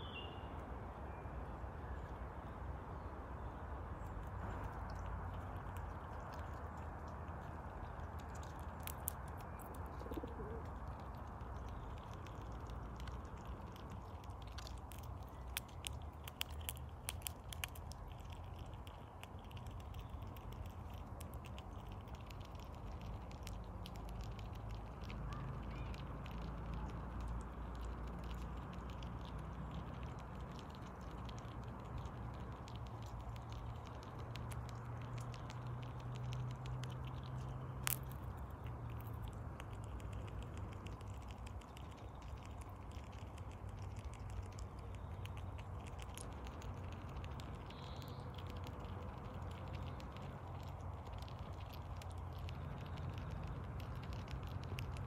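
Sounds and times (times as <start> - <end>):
low steady background rumble: 0.0 - 55.0
squirrel cracking seeds: 3.9 - 55.0.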